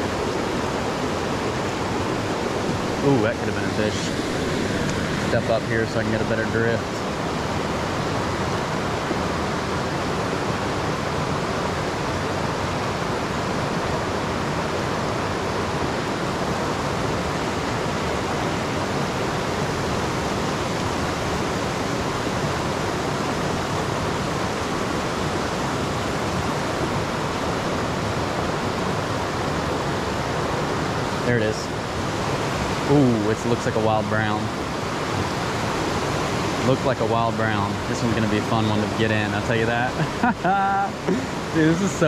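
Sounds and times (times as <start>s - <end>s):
stream rushing over stones: 0.0s - 42.0s.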